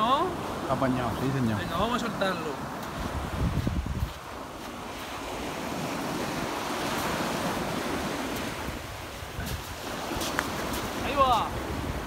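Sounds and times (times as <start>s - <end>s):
surf breaking on a beach: 0.0s - 12.0s.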